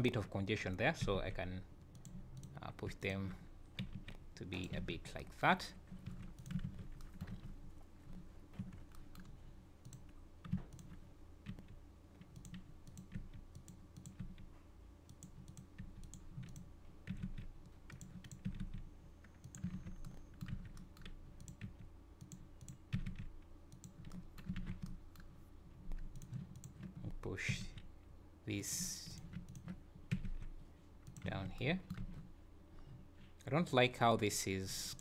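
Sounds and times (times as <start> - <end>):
steady low hum: 0.0 - 35.0
computer keyboard and mouse clicking: 1.8 - 2.6, 3.7 - 4.8, 5.9 - 25.3, 25.9 - 27.2, 29.1 - 32.3.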